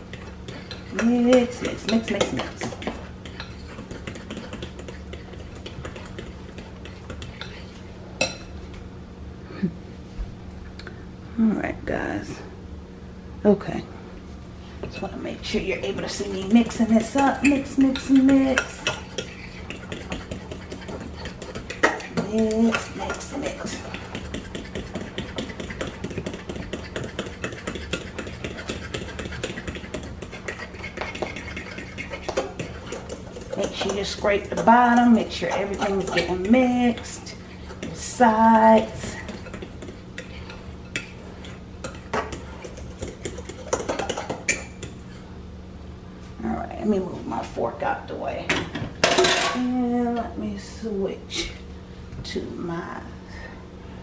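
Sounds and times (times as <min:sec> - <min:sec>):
fork beating batter in bowl: 0:00.0 - 0:08.8, 0:14.8 - 0:45.3
steady low hum: 0:00.0 - 0:54.0.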